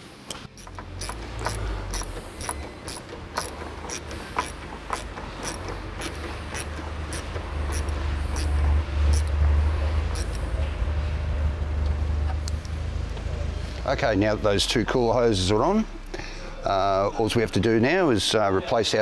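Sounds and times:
hand ratchet clicking: 0.6 - 9.4, 10.1 - 10.4
low hum: 4.9 - 17.6.

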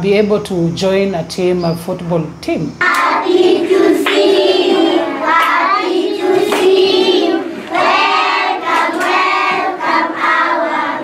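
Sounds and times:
children singing together: 2.8 - 11.0.

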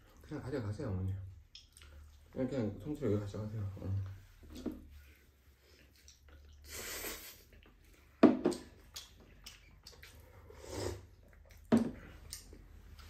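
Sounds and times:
person slurping noodles: 6.6 - 7.5, 10.4 - 11.2.

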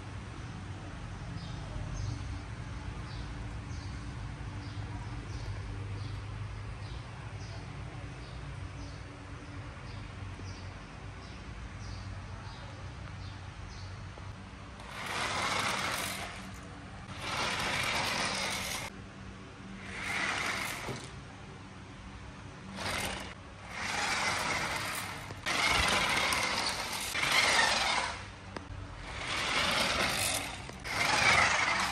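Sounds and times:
toy car motor whirring: 14.8 - 18.9, 19.8 - 21.2, 22.7 - 31.9.

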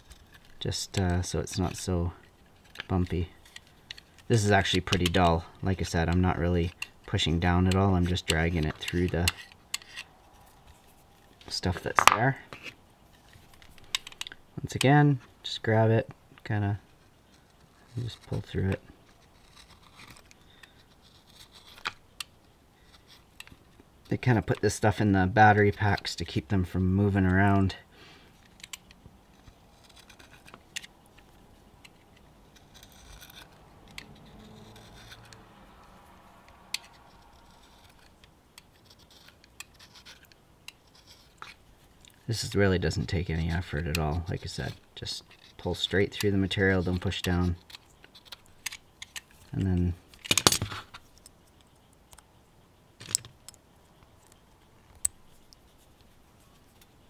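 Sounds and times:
faint handling ticks: 0.0 - 50.2
knife blade scraping: 6.6 - 10.9, 17.0 - 22.0, 28.4 - 30.9, 31.9 - 36.0, 36.6 - 41.6
knife blade scraping plastic wrap: 17.4 - 22.0.

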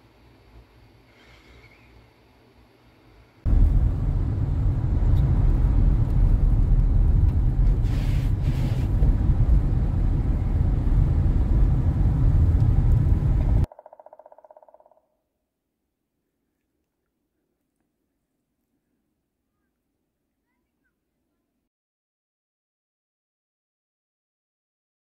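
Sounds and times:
tyre and road noise: 3.5 - 13.7
woodpecker drumming: 13.7 - 15.2.

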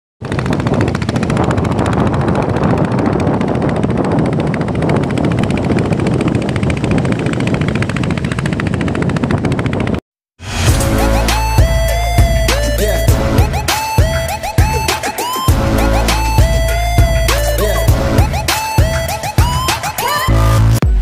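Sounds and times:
boat engine chugging: 0.2 - 10.0, 10.8 - 20.2
wind noise: 0.2 - 10.7
water noise: 13.0 - 18.1.

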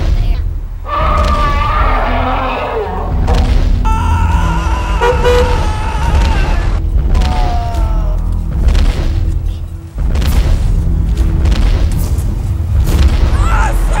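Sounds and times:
background music with low rumble: 0.0 - 14.0
car horns honking: 5.0 - 5.7.

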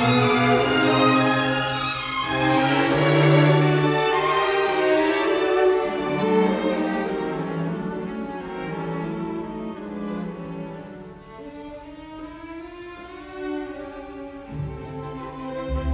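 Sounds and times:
slow string music: 0.0 - 15.9.

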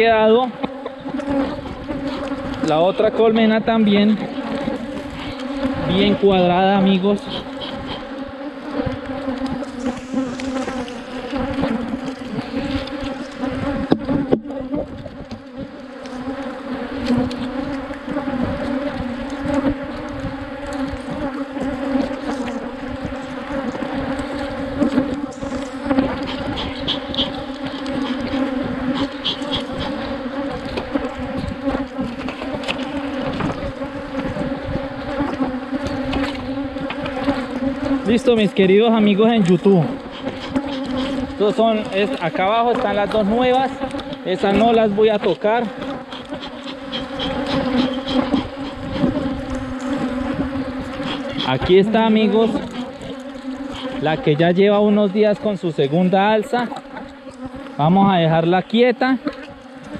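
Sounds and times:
honeybees buzzing: 0.0 - 59.9.

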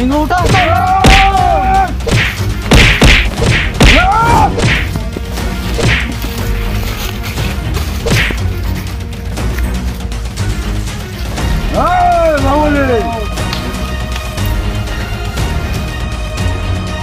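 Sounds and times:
punch and kick hits: 0.4 - 5.0, 5.8 - 6.1, 8.0 - 8.4.

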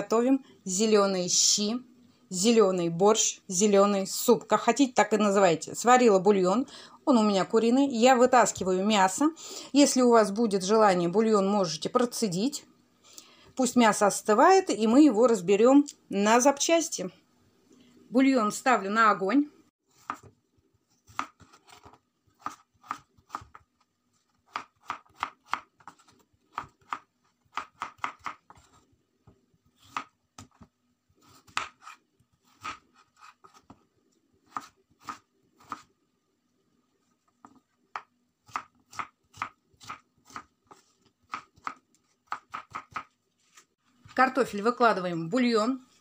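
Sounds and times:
knife chopping on wooden board: 20.0 - 20.3, 21.0 - 23.6, 24.5 - 28.8, 29.8 - 33.8, 34.5 - 35.9, 37.4 - 43.1.

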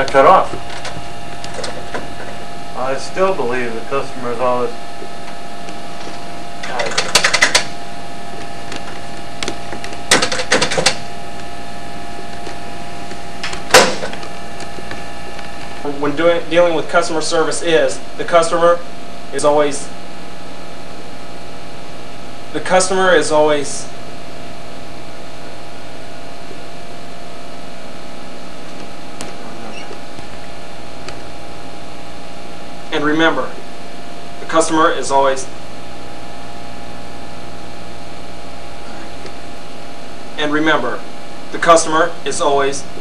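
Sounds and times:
electrical hum: 0.0 - 43.0.

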